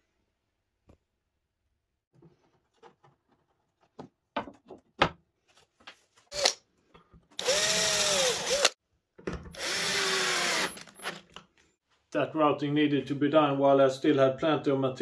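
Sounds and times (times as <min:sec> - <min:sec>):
cordless drill running: 0:06.3 - 0:06.6, 0:07.4 - 0:08.8, 0:09.6 - 0:11.2.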